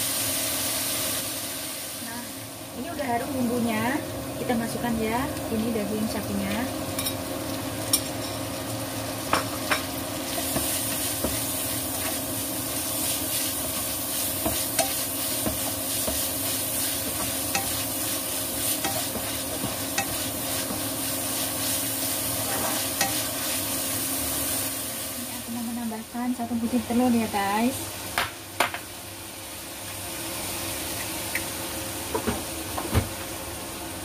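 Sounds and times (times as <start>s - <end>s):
beef sizzling in hot oil: 0.0s - 34.0s
spatula scraping wok: 10.3s - 24.7s.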